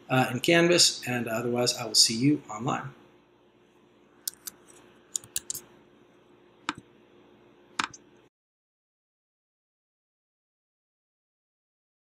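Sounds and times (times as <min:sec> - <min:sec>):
faint room hiss: 0:00.0 - 0:08.3
computer mouse clicks: 0:04.2 - 0:05.6, 0:07.8 - 0:08.0.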